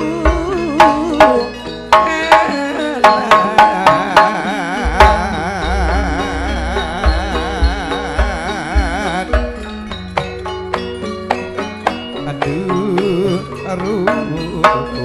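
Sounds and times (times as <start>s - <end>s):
person singing with vibrato: 0.0s - 10.0s, 12.2s - 15.0s
hand drum strokes: 0.0s - 13.3s
deep pulsing low beat: 4.8s - 10.3s.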